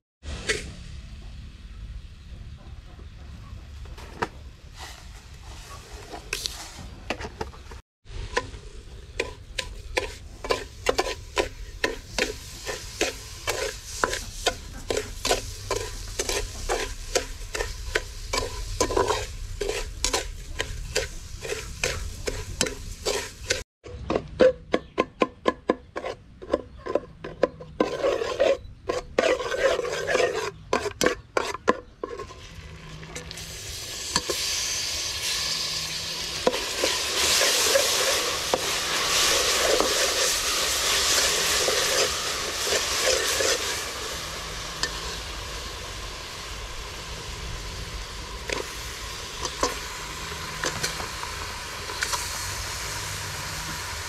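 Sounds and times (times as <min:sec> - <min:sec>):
sizzling: 0:04.6 - 0:23.7, 0:27.7 - 0:54.0
metal spatula scraping pot: 0:08.2 - 0:23.6, 0:24.2 - 0:33.4, 0:34.0 - 0:44.1.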